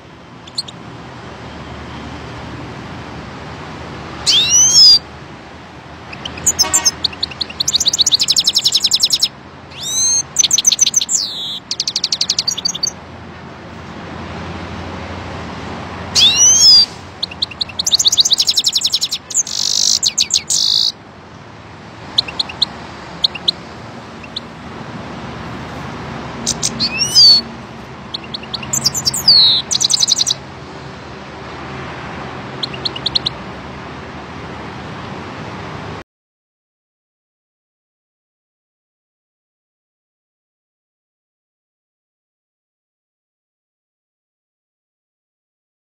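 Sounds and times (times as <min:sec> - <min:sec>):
goldfinch singing: 0:00.4 - 0:00.8, 0:04.2 - 0:05.0, 0:06.1 - 0:13.0, 0:16.2 - 0:21.0, 0:22.1 - 0:24.5, 0:26.4 - 0:30.4, 0:32.4 - 0:33.4.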